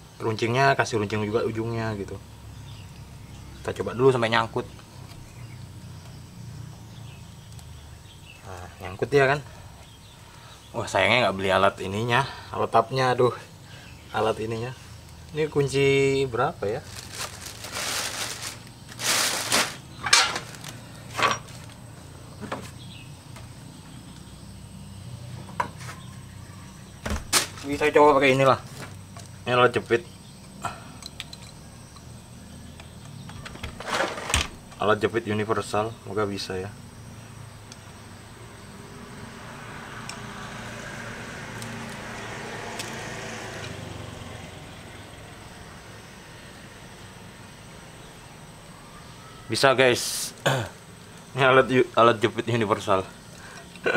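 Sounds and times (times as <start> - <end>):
hand tools clattering: 17.3 - 21.7
road vehicle passing: 36.8 - 49.0.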